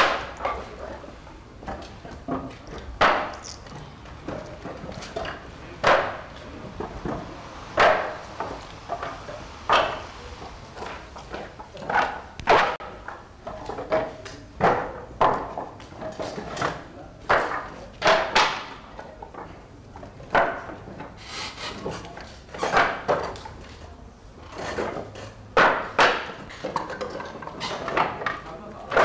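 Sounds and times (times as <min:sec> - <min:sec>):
wooden blocks knocking: 0:00.0 - 0:00.7, 0:01.6 - 0:10.1, 0:10.8 - 0:19.5, 0:25.6 - 0:29.0.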